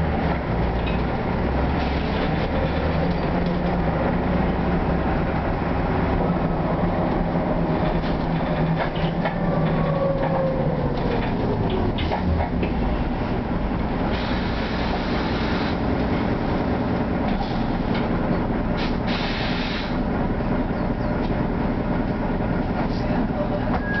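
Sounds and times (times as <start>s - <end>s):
bus engine and road rumble: 0.0s - 24.0s
rattles and clicks of bus body: 0.0s - 24.0s
air hiss: 18.8s - 20.0s.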